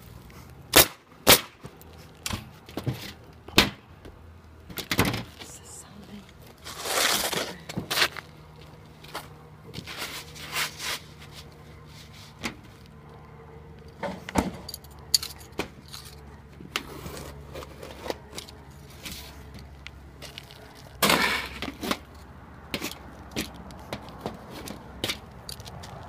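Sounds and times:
shingles scraping and rustling: 6.5s - 8.3s, 9.1s - 12.8s, 16.8s - 19.4s.

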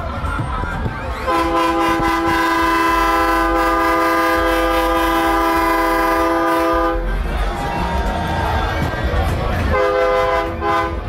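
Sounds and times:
loud air horn chord: 1.3s - 7.1s, 9.7s - 11.0s.

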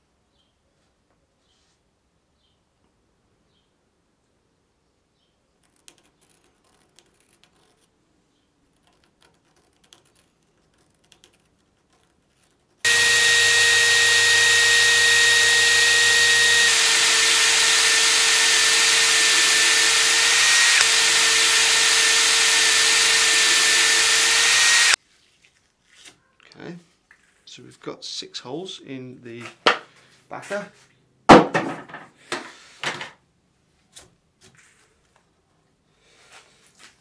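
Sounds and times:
cordless drill whining: 12.9s - 25.0s.

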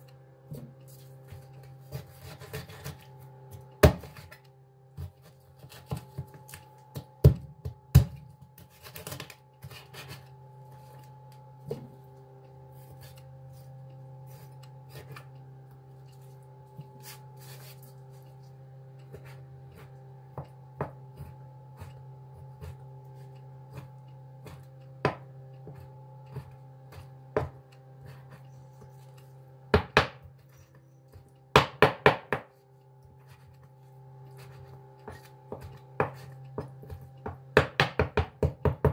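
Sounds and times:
steady low hum: 0.0s - 38.9s
cleaver chopping on cutting board: 3.8s - 4.2s, 35.1s - 38.9s.

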